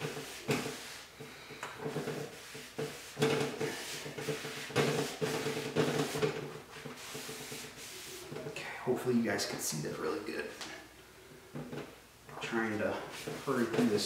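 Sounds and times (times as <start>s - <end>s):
towel scrubbing wooden door: 0.0s - 8.7s, 12.4s - 14.0s.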